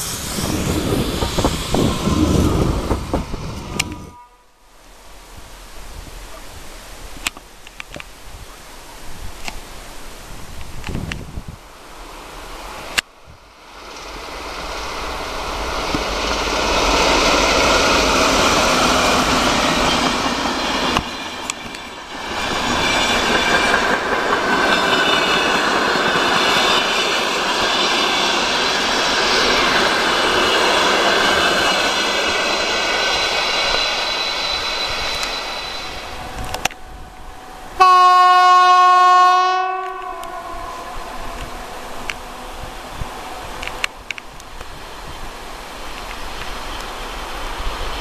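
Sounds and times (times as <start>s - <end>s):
train wheels rushing on rail: 0.0s - 4.2s, 9.1s - 48.0s
high ringing from wheels: 19.2s - 37.0s.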